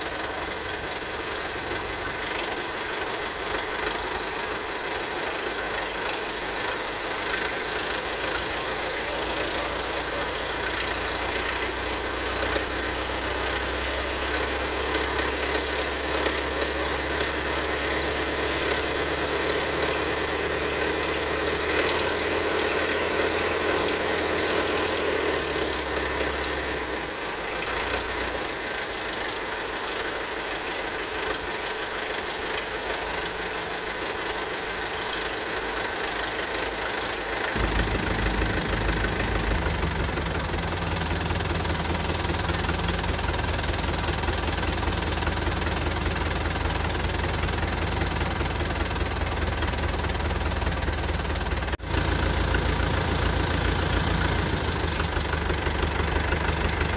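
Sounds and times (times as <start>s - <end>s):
diesel engine idling: 0.0s - 56.9s
deep rumble: 37.6s - 43.3s.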